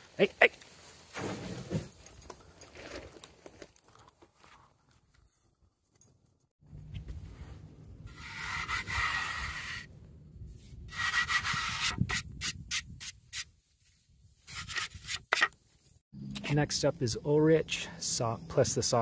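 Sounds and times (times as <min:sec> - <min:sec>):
rubbing and scraping: 0:08.1 - 0:09.9, 0:10.5 - 0:13.5, 0:14.4 - 0:15.6.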